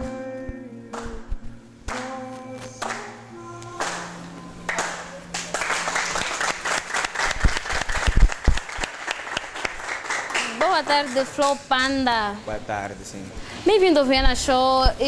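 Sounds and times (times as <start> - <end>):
audience clapping: 1.9 - 2.2, 2.8 - 3.2, 3.8 - 11.8.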